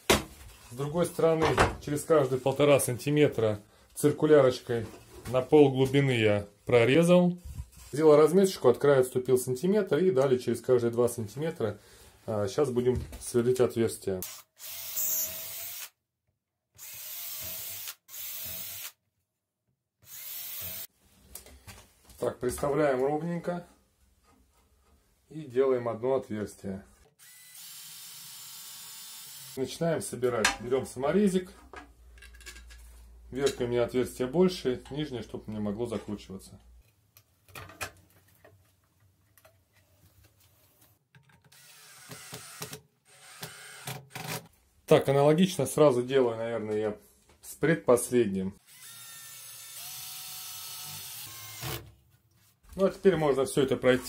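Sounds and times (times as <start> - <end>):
drill driving screw into plastic: 14.2 - 16.0, 16.8 - 19.0, 20.0 - 20.9, 27.2 - 29.6, 41.4 - 44.5, 48.7 - 51.9
drill bit hissing through plastic: 20.1 - 20.9
drill motor whine: 27.2 - 29.6.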